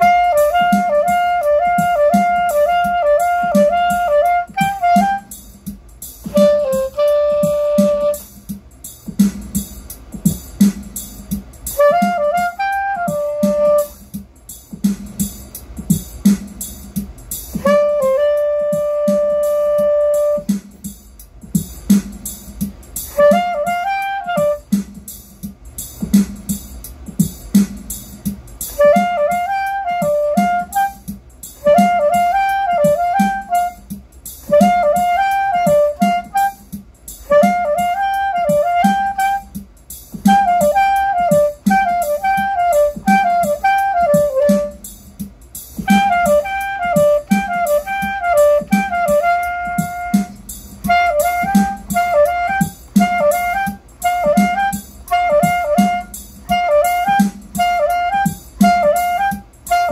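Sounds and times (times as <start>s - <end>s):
soprano saxophone playing: 0.0s - 5.4s, 6.2s - 8.3s, 11.7s - 14.0s, 17.5s - 20.6s, 23.1s - 24.8s, 28.7s - 39.6s, 40.2s - 44.9s, 45.8s - 59.9s
drum beat with kick and hi-hat: 0.0s - 59.9s.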